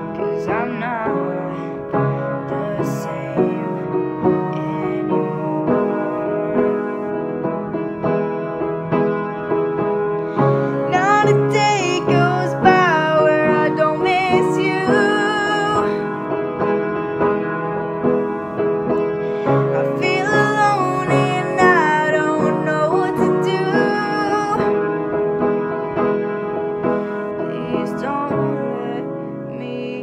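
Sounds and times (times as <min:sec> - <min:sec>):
woman singing: 0:00.0 - 0:07.5, 0:10.4 - 0:16.2, 0:19.4 - 0:24.8, 0:27.3 - 0:30.0
upright piano chords: 0:00.0 - 0:30.0.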